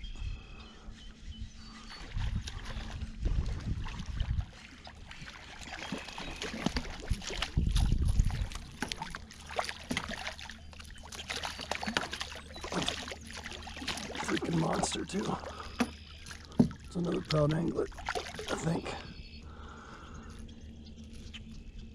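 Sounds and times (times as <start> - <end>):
low rumble on microphone: 0.0 - 5.4, 6.3 - 9.3
water splashing and sloshing: 1.0 - 21.9
fish thrashing knocks and rustles: 5.3 - 18.6.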